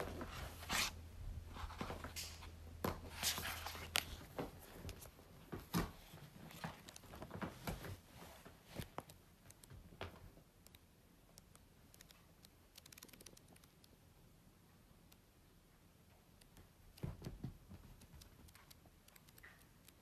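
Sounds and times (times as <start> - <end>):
book pages flipping: 0.0 - 9.7.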